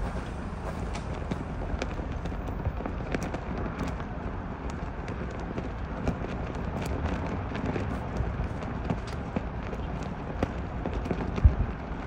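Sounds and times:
wind gusting over microphone: 0:00.0 - 0:12.0.

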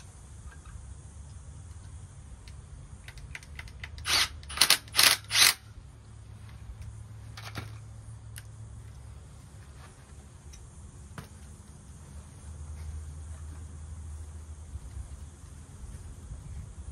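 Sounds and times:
light clicks of tool and parts: 0:00.4 - 0:05.6, 0:06.8 - 0:09.0
cordless drill bursts: 0:04.0 - 0:05.6.

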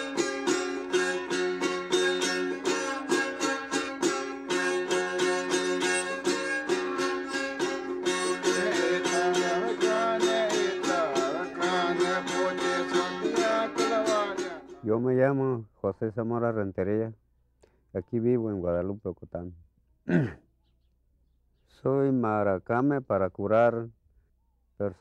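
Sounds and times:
quickly strummed string instrument: 0:00.0 - 0:14.8.

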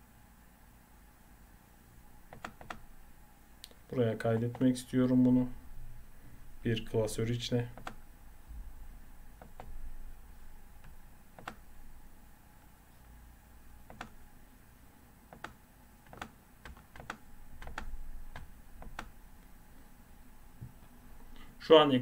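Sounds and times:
computer mouse clicks: 0:02.3 - 0:02.8, 0:07.8 - 0:08.0, 0:10.8 - 0:11.7, 0:13.9 - 0:14.2, 0:15.3 - 0:19.2.

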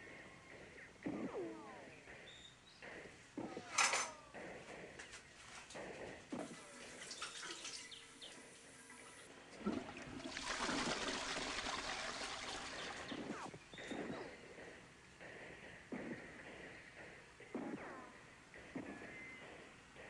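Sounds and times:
water running: 0:06.4 - 0:08.6, 0:09.5 - 0:13.5.

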